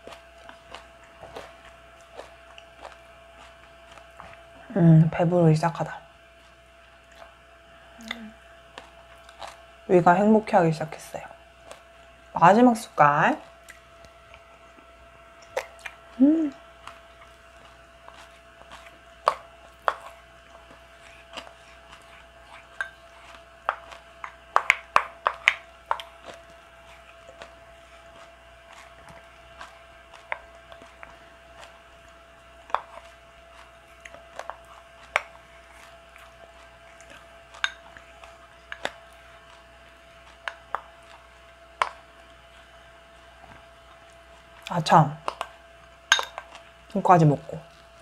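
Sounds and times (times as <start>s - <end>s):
chopsticks clinking on ceramic bowl: 46.1s - 46.5s.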